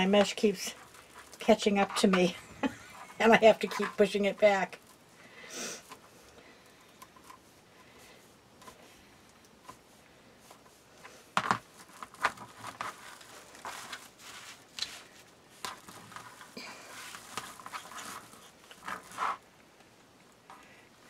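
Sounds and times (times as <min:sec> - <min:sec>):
metallic mesh crinkling and rustling: 0:00.0 - 0:05.1, 0:11.5 - 0:19.4.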